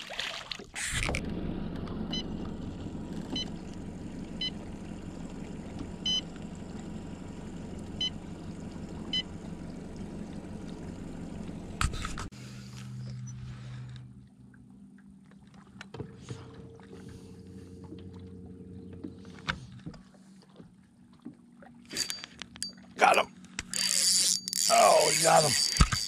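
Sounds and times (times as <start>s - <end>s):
fish splashing into water: 0.0s - 1.1s
steady low hum: 1.1s - 21.0s.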